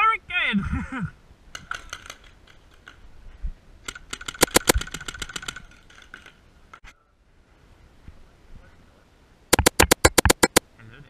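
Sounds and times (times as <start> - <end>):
paintball markers firing: 4.1 - 5.4, 9.6 - 10.6.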